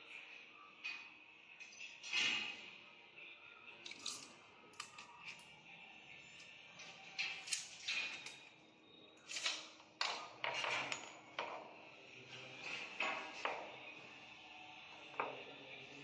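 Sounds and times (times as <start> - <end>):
tools clinking on stone: 3.8 - 5.4, 9.2 - 11.6.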